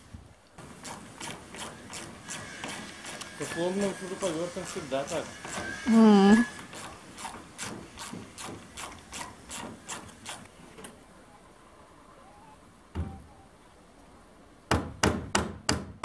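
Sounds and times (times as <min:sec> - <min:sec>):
hammer driving nails into wood: 0:14.7 - 0:16.0
knock: 0:14.7 - 0:16.0.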